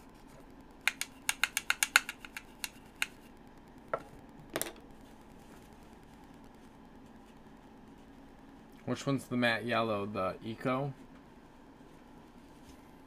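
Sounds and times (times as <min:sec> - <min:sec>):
sharp clicks and taps: 0:00.8 - 0:03.2.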